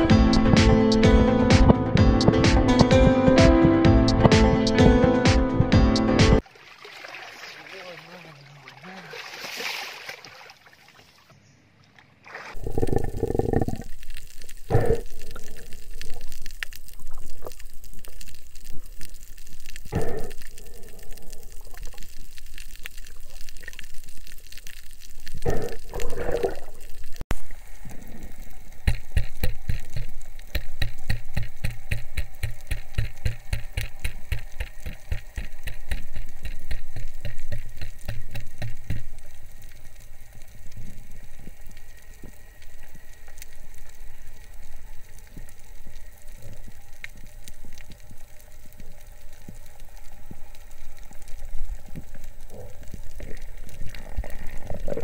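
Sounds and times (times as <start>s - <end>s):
rapid ticking: 0.0s - 6.1s, 28.8s - 39.3s.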